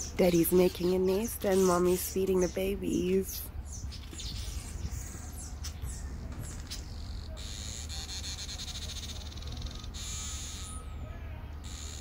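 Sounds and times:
bird buzzing chatter: 0:03.9 - 0:10.9, 0:11.6 - 0:12.0.

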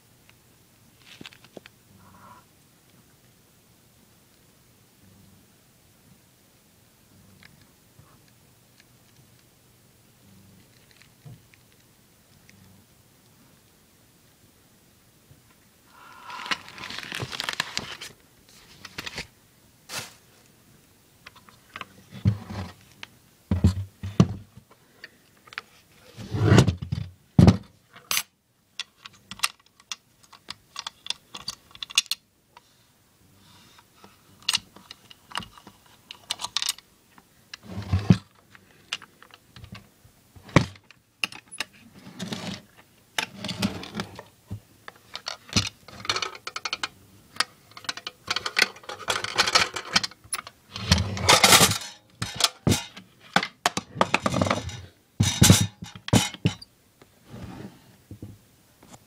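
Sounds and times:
metal case rattling and clicking: 0:51.0 - 0:56.6.

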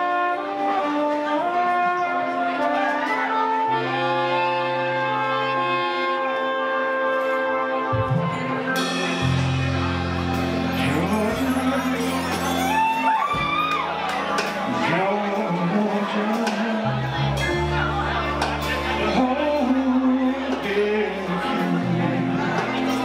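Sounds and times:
horn section holding chords: 0:00.0 - 0:23.0
electric bass: 0:07.9 - 0:23.0.

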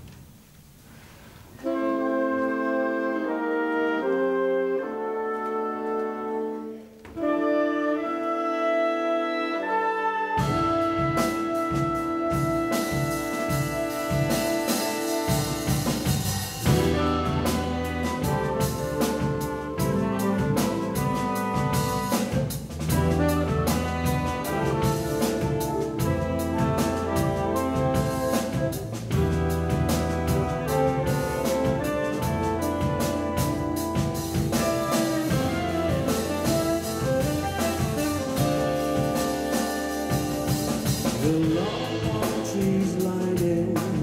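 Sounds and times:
wind band playing held chords: 0:01.6 - 0:43.0
drum kit and electric bass: 0:10.3 - 0:44.0.

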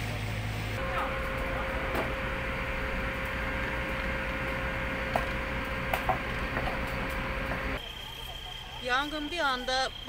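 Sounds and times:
steady hum: 0:00.0 - 0:08.0.

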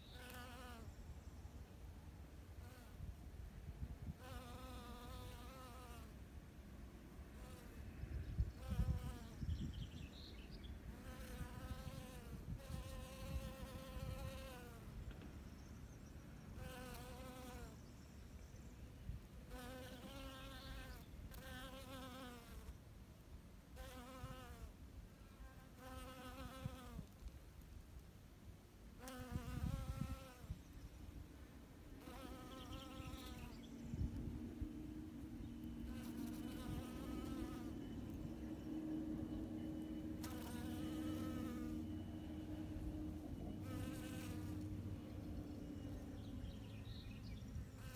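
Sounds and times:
bee buzzing in flight: 0:10.9 - 0:14.8, 0:25.5 - 0:27.1, 0:35.7 - 0:45.0.

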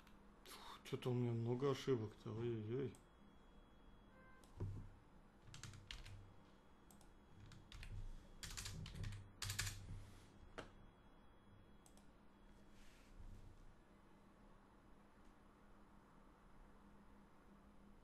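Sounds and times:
computer keyboard typing: 0:05.5 - 0:06.2, 0:06.9 - 0:09.8.

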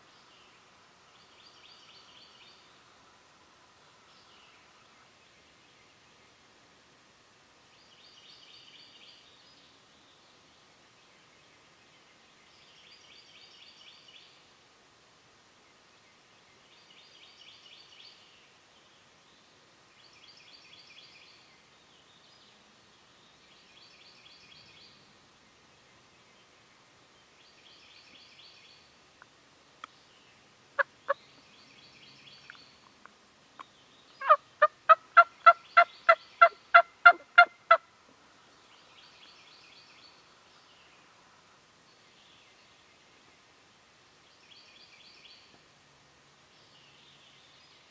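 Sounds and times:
turkey clucks: 0:34.2 - 0:37.8
turkey yelps: 0:34.2 - 0:37.8.

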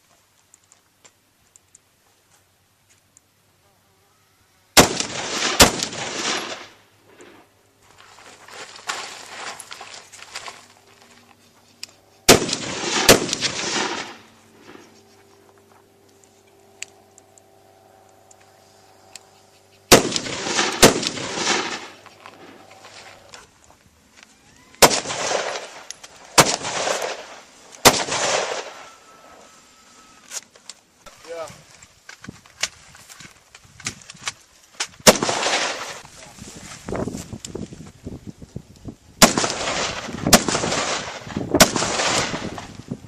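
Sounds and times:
gunshots echoing: 0:04.8 - 0:07.4, 0:12.3 - 0:14.8, 0:19.9 - 0:22.7, 0:24.8 - 0:29.0, 0:35.0 - 0:36.0, 0:39.2 - 0:42.6.

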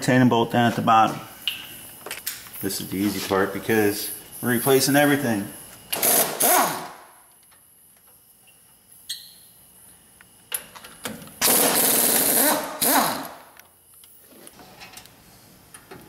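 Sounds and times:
air impact wrench hammering: 0:05.9 - 0:07.1, 0:11.4 - 0:13.6.

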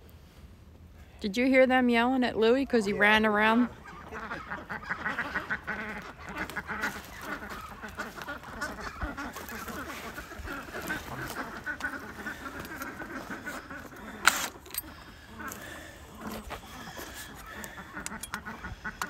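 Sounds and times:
ducks quacking: 0:03.1 - 0:19.0.

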